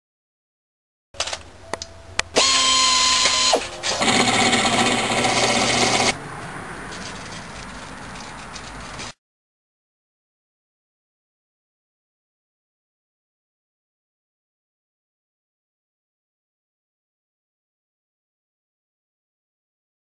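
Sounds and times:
drill press boring through steel: 2.4 - 6.2
power tool whine: 2.4 - 6.2.

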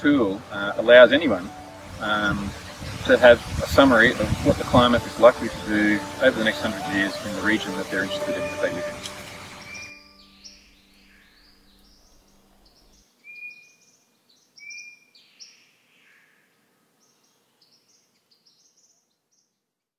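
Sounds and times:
bird chirping: 4.6 - 16.2
bird whistling: 5.5 - 12.2.

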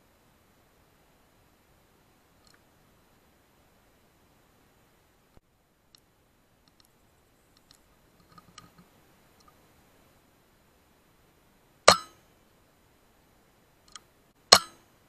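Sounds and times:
faint ticks: 2.4 - 2.7, 5.3 - 9.6, 13.8 - 14.1.

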